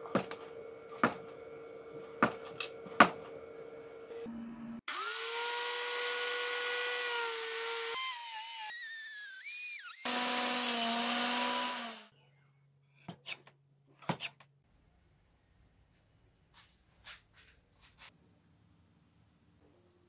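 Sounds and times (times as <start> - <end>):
angle grinder cutting board: 4.9 - 12.1.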